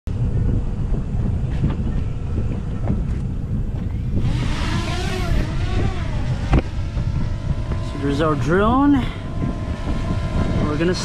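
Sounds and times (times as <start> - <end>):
drone propellers whining: 0.1 - 11.0
steady low rumble: 0.1 - 11.0.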